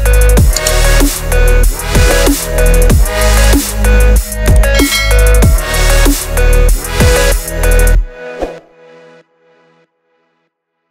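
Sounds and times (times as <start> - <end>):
dubstep electronic music: 0.0 - 8.0.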